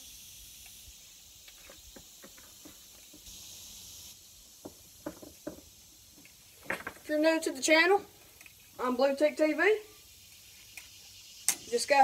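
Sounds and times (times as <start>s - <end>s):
cicadas droning: 0.0s - 12.0s.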